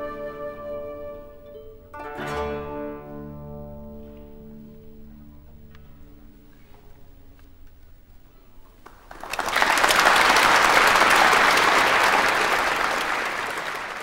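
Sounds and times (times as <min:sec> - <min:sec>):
koto ensemble notes: 0:00.0 - 0:07.4
audience applause: 0:08.8 - 0:14.0.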